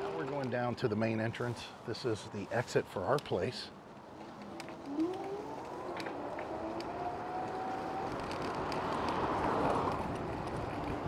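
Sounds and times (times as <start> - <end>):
electric scooter motor whining: 4.4 - 11.0.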